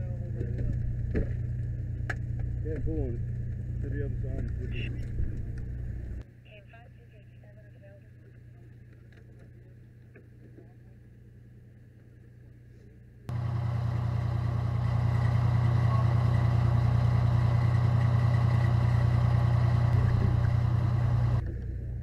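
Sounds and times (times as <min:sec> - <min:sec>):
engine running: 0:00.0 - 0:06.2, 0:13.3 - 0:22.0
quiet steady hum: 0:19.8 - 0:22.0.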